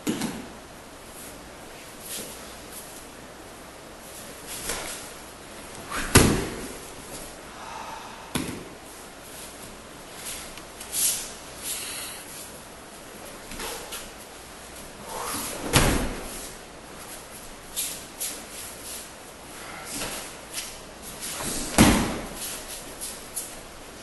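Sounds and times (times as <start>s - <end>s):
rustling swishes: 4.0s - 7.4s
body slamming onto mat: 6.1s - 6.8s, 15.6s - 16.3s, 21.4s - 22.4s.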